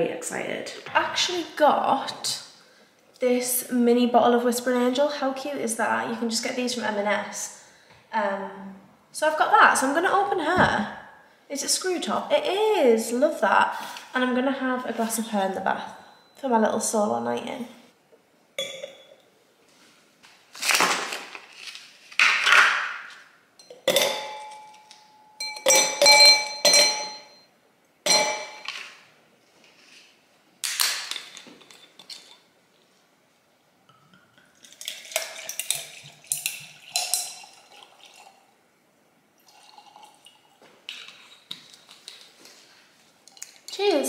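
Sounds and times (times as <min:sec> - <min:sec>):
glass clinking on stone: 0:18.6 - 0:19.2, 0:23.6 - 0:27.5, 0:28.1 - 0:28.8
wine pouring into glass: 0:34.6 - 0:38.6, 0:39.4 - 0:41.3.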